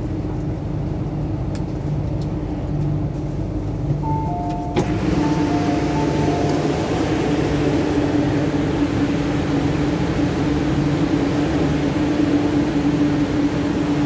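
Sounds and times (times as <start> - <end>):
train low hum: 0.0 - 14.0
train doors clunking open: 3.8 - 7.4
two-note door chime: 4.0 - 7.0.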